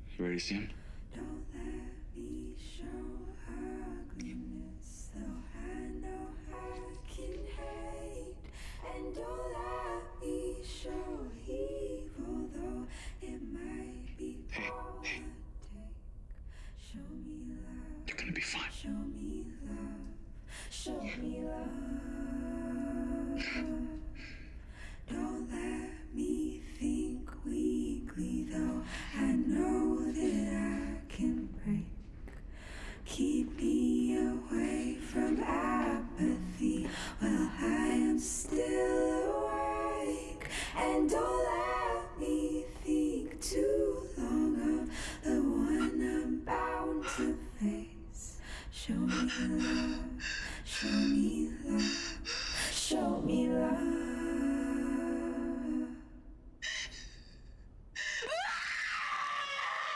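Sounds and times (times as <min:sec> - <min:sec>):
woman singing slow melody: 0:20.8 - 0:24.0, 0:44.8 - 0:50.2, 0:50.8 - 0:52.2
person singing slow phrases: 0:48.9 - 0:53.0.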